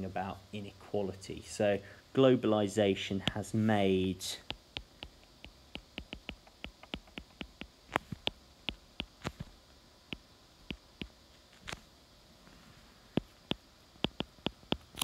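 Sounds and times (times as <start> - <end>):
stylus tapping on tablet screen: 4.5 - 9.4, 13.2 - 14.9.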